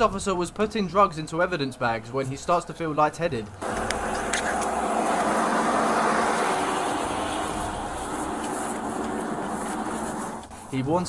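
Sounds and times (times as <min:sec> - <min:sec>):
vehicle passing on highway: 0:03.6 - 0:10.7.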